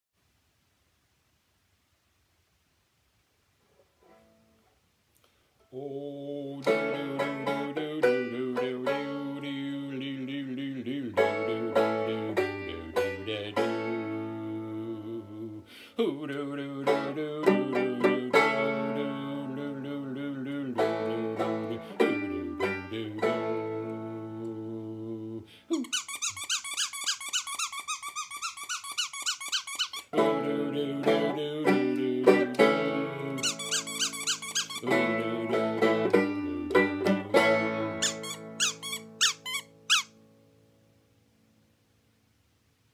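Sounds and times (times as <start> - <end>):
banjo picking lively tune: 6.4 - 15.5, 16.2 - 25.3, 30.1 - 39.2.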